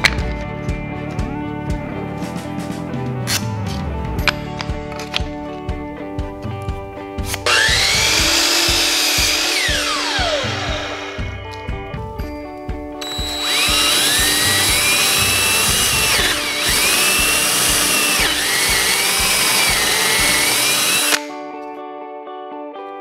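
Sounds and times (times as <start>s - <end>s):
background music with beat: 0.0s - 21.7s
cordless drill boring into wood: 7.4s - 11.4s, 13.0s - 21.3s.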